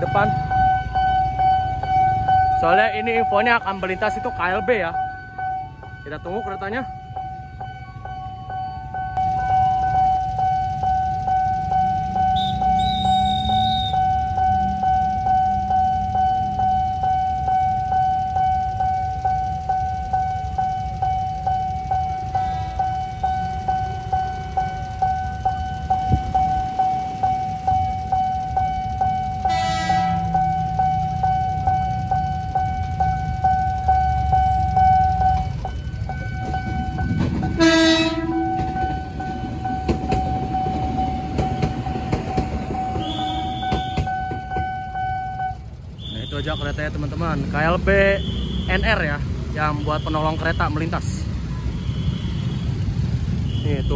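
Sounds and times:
level crossing alarm pulsing: 0.0 - 53.6
train passing with rumble: 0.0 - 53.9
train horn: 29.5 - 30.3, 37.5 - 38.7, 43.0 - 44.1.

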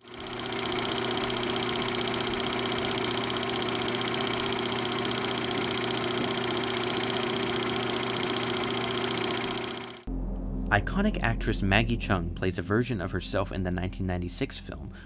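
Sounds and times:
film projector clattering: 0.0 - 10.1
projector motor hum: 0.0 - 10.1.

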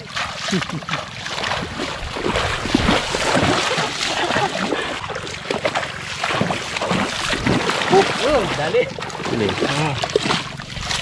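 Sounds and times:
wading through shallow water: 0.0 - 11.0.

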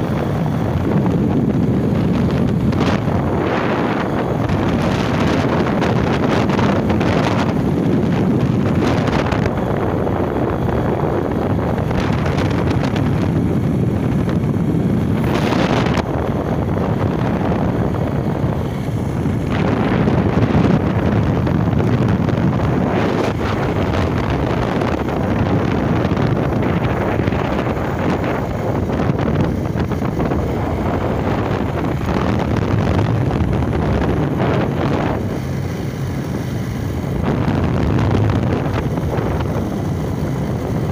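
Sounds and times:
motorcycle engine running: 0.0 - 40.9
wind buffeting microphone: 0.0 - 40.9.

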